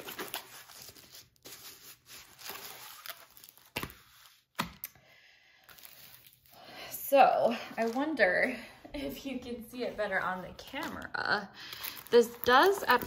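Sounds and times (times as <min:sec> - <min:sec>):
plastic film rustling and crinkling: 0:00.0 - 0:04.5, 0:05.6 - 0:06.6, 0:07.4 - 0:08.6, 0:09.8 - 0:13.0.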